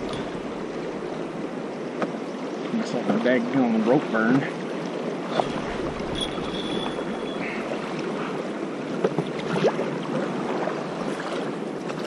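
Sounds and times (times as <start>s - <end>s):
paddle dipping through water: 0.0s - 12.0s
river water rushing and splashing: 0.0s - 12.0s.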